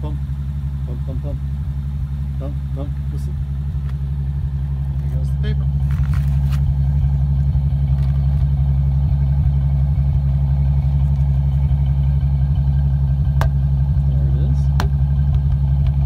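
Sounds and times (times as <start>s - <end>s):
engine idling with uneven pulse: 0.0s - 16.0s
sharp tap: 13.4s - 13.6s, 14.7s - 15.5s.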